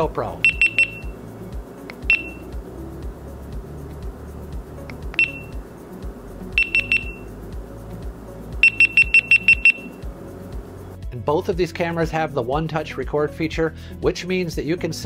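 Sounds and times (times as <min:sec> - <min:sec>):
camera beeping: 0:02.0 - 0:02.5, 0:05.2 - 0:05.6, 0:06.6 - 0:07.3, 0:08.6 - 0:09.9.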